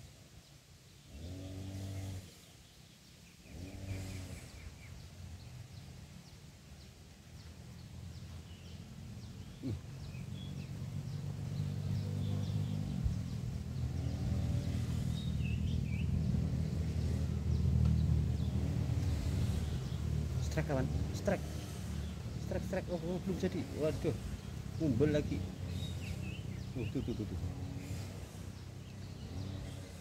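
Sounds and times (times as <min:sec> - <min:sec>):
low animal calls: 0:03.5 - 0:04.8, 0:09.3 - 0:30.0.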